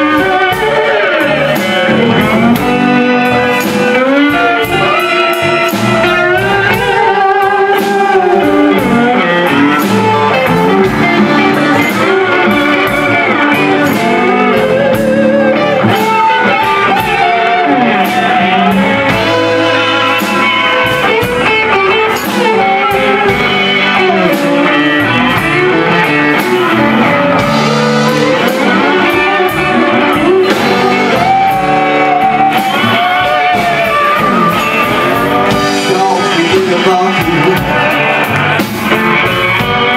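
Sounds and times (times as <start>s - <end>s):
electric guitar lead: 0.0s - 39.9s
live blues band playing: 0.0s - 39.9s.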